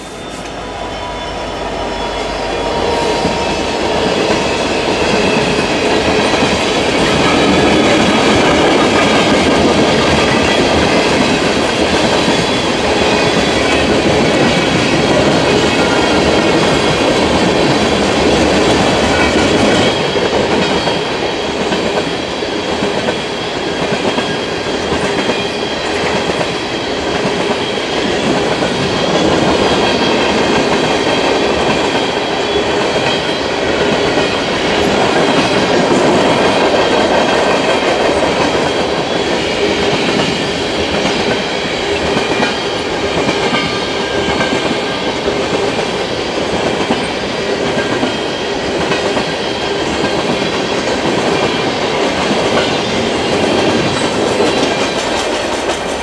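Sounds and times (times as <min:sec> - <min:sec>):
freight train wheels on rails: 0:00.0 - 0:56.0.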